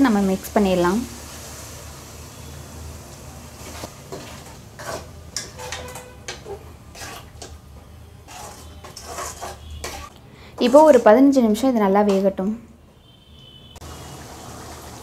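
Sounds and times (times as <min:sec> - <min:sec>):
ladle scraping a metal pan: 0:03.6 - 0:07.6, 0:08.2 - 0:11.1.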